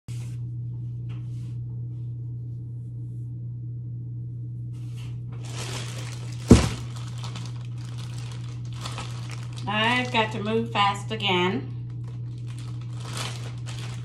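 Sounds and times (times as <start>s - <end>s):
steady low hum: 0.1s - 14.0s
bag thumping onto counter: 5.4s - 7.3s
plastic bag crinkling: 5.4s - 10.7s, 11.7s - 14.0s.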